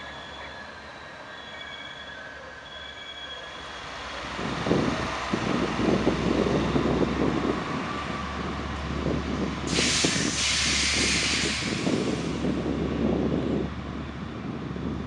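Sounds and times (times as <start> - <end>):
wheels rumbling on rails: 0.0 - 15.0
loud hiss: 9.7 - 12.5.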